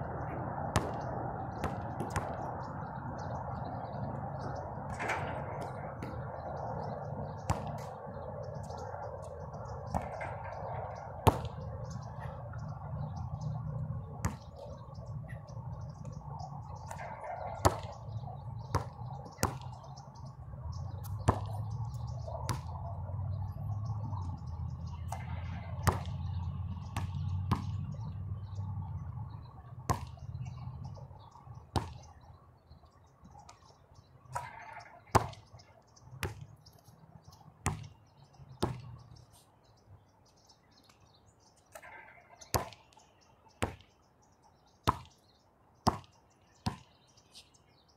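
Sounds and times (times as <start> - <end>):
basketball bouncing on court: 0.6 - 20.0, 20.8 - 22.8, 25.0 - 28.1, 29.9 - 30.8, 31.7 - 32.0, 34.3 - 35.6, 36.2 - 36.5, 37.6 - 38.0, 38.6 - 39.0, 41.8 - 43.0, 43.6 - 43.9, 44.9 - 45.1, 45.8 - 46.9.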